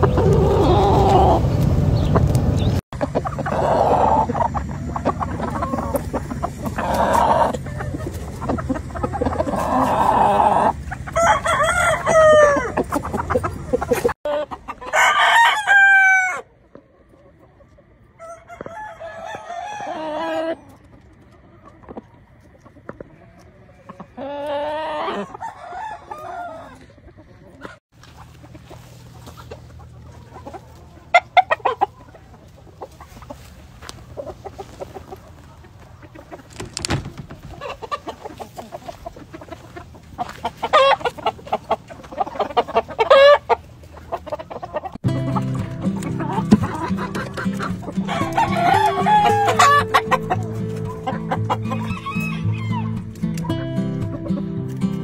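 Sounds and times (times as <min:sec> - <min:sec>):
roosters crowing: 0:00.0 - 0:16.6, 0:18.0 - 0:20.8, 0:23.2 - 0:27.8, 0:36.3 - 0:45.0, 0:46.0 - 0:53.1
hens clucking: 0:00.0 - 0:55.0.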